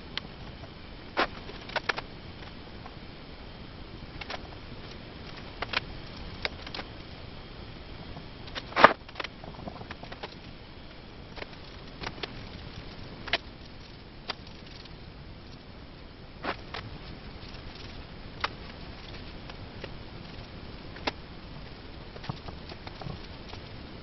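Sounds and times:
faint steady hiss: 0:00.0 - 0:24.0.

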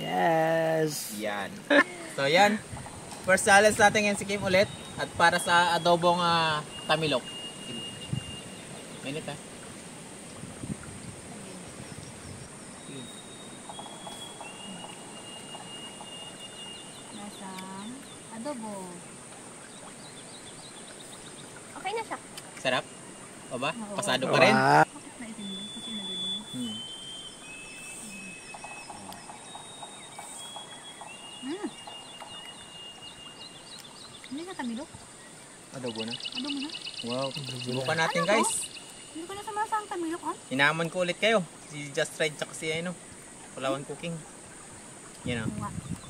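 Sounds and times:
high insect drone: 0:00.0 - 0:45.5
birds chirping: 0:00.0 - 0:46.0
bird whistling long notes: 0:04.6 - 0:08.8, 0:12.8 - 0:17.2, 0:25.3 - 0:34.1
long whistling tones: 0:25.2 - 0:33.5.

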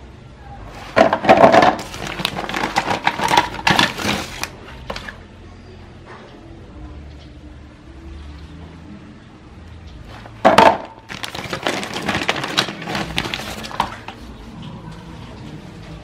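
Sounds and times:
plastic bag crinkling: 0:01.0 - 0:05.1, 0:10.6 - 0:14.2.

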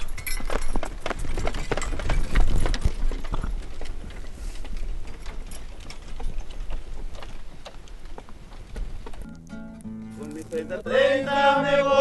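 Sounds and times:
wooden wagon knocking and rattling: 0:00.0 - 0:09.3
horse hooves clip-clopping: 0:00.0 - 0:10.7.

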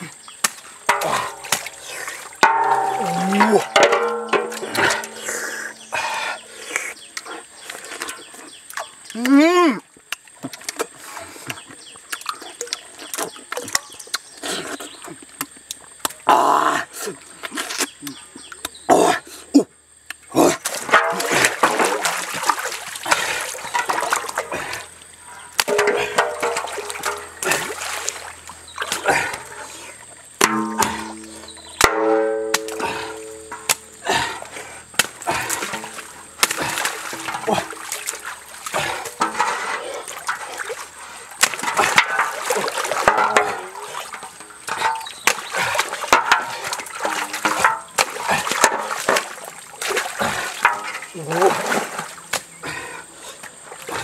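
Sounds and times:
water splashing and trickling: 0:00.0 - 0:18.7, 0:19.8 - 0:54.0
things set down in metal basin: 0:00.4 - 0:05.9, 0:20.7 - 0:22.8, 0:23.6 - 0:24.5, 0:25.6 - 0:29.5, 0:30.4 - 0:52.5
sharp knocks: 0:02.4 - 0:05.3, 0:30.4 - 0:33.8.

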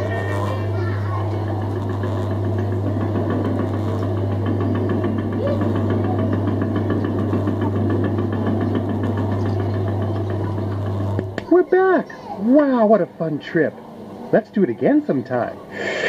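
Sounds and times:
mechanical rattle: 0:00.0 - 0:11.6
ride motor humming: 0:00.0 - 0:16.0.

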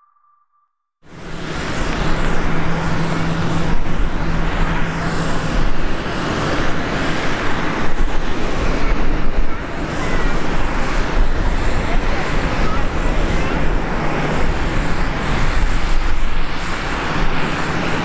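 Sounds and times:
steady low tone: 0:00.0 - 0:06.8
jet engines roaring: 0:01.0 - 0:18.0.

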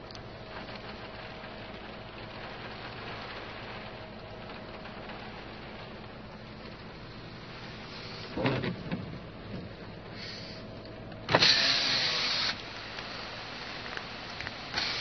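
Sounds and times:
car window motor whirring: 0:07.8 - 0:10.0, 0:11.3 - 0:13.2.

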